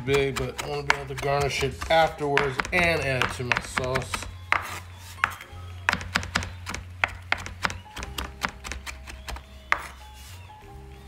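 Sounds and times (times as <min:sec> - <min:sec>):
knife chopping on wooden board: 0:00.0 - 0:10.0.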